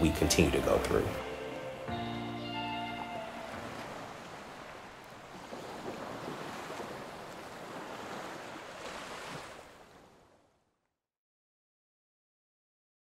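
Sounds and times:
surf washing onto beach: 2.9 - 10.4.

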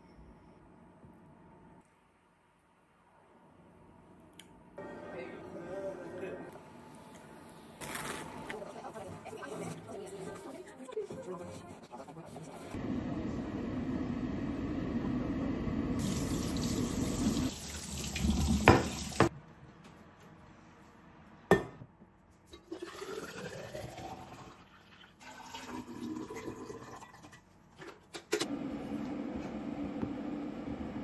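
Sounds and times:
tea pouring into a tumbler: 22.7 - 27.2.

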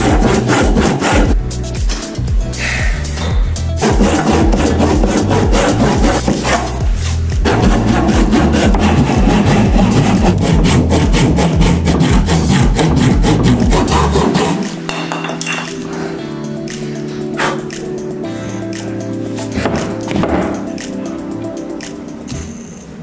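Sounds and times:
hand saw cutting wood: 0.0 - 1.4, 3.8 - 14.8.

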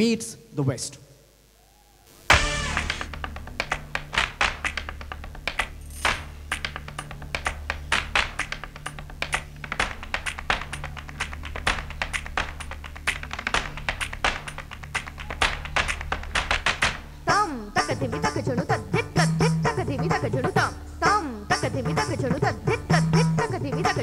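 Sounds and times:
low bass line: 2.3 - 10.7
rapid percussion strikes: 2.3 - 17.1.

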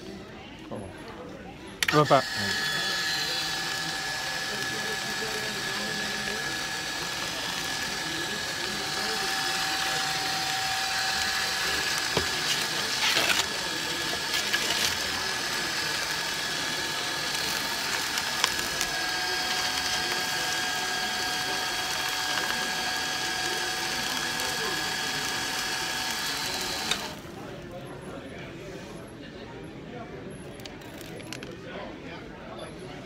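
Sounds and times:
motor whining: 1.8 - 27.3.

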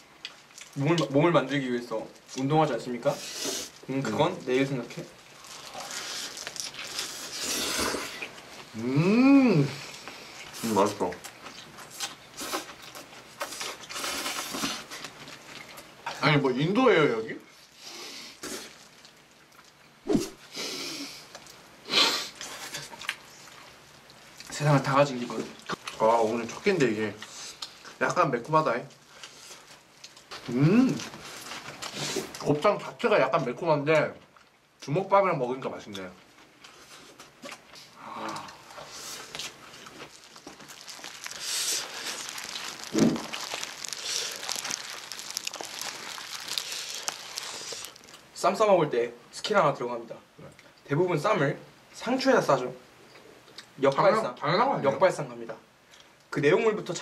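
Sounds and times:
plastic glove crinkling: 3.7 - 8.8, 38.8 - 48.6
person humming mm: 8.8 - 9.9, 30.5 - 31.1, 38.0 - 38.6.

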